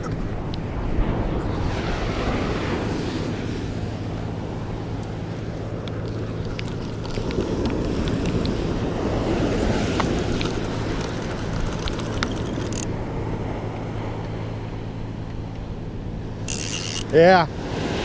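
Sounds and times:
breaking surf: 0.0 - 15.0, 16.4 - 18.0
wind buffeting microphone: 0.0 - 18.0
fishing reel ticking: 9.9 - 12.9, 16.4 - 17.4.

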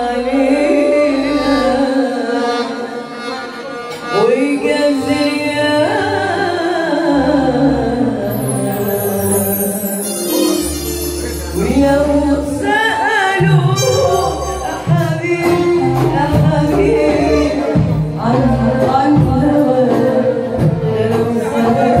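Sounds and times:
woman singing into microphone: 0.0 - 3.4, 4.0 - 10.3, 11.6 - 22.0
bass line: 7.1 - 12.8, 13.4 - 22.0
amplified instrumental accompaniment: 7.4 - 22.0.

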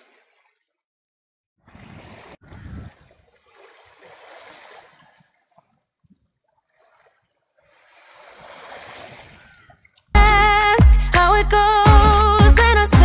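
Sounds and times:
small waves washing on shore: 1.7 - 5.8, 6.6 - 10.0.

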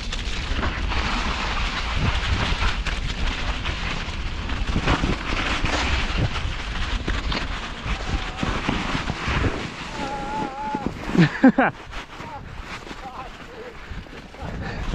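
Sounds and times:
bike rattling over bumps: 0.0 - 14.9
tyres rolling through mud: 0.0 - 14.9
wind on microphone: 0.0 - 14.9.

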